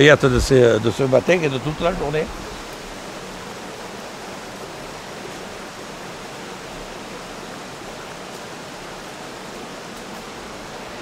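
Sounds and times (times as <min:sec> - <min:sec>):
rocky stream flowing: 0:00.0 - 0:11.0.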